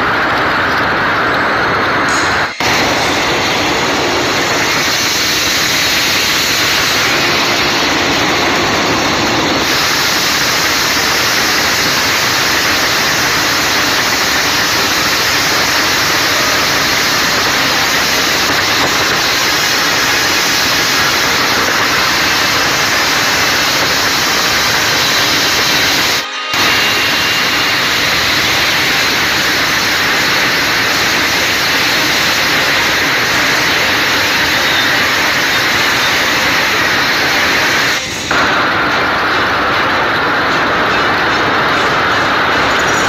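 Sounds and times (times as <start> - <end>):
heavy rain: 0.0 - 43.0.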